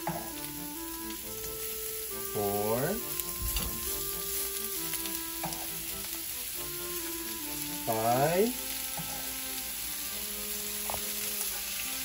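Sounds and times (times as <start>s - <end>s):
chicken frying in oil: 0.0s - 12.0s
metal tongs tapping: 5.4s - 5.8s.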